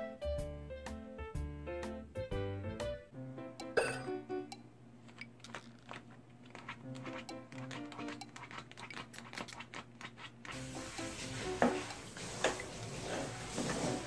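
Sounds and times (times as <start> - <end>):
background music: 0.0 - 4.7, 6.8 - 8.2, 10.6 - 12.0.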